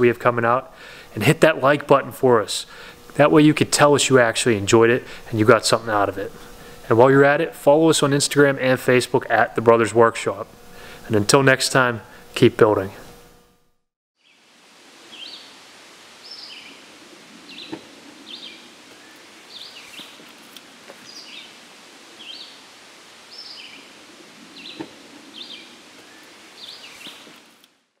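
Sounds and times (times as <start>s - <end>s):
steady background hiss: 0.0s - 13.5s, 14.2s - 28.0s
small birds chirping: 15.1s - 15.6s, 16.2s - 20.4s, 21.0s - 27.5s.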